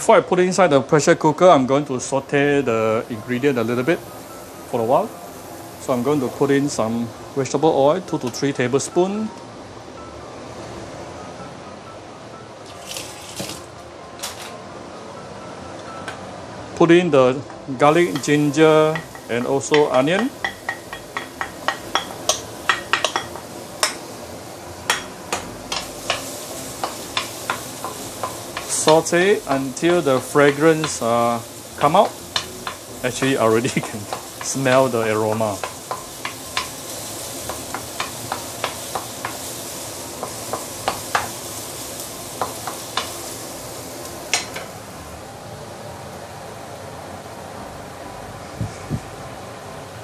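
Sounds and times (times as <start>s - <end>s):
food sizzling in oil: 1.6s - 9.2s, 12.6s - 13.8s, 17.7s - 45.2s
knife tapping and scraping on metal: 18.1s - 24.0s, 24.9s - 29.6s, 31.8s - 36.7s.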